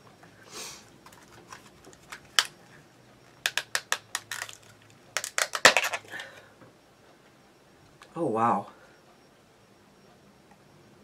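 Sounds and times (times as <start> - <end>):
person sniffing: 0.4 - 0.9
plastic clamshell clicking: 3.4 - 4.6, 5.2 - 6.1.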